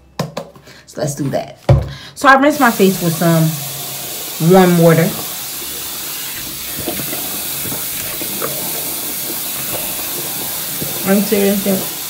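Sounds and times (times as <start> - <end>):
faucet running: 2.5 - 12.0
water splashing on face: 2.7 - 12.0.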